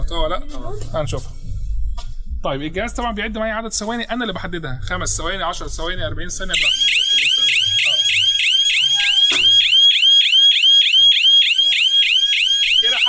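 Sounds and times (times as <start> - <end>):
security alarm siren warbling: 6.6 - 13.0.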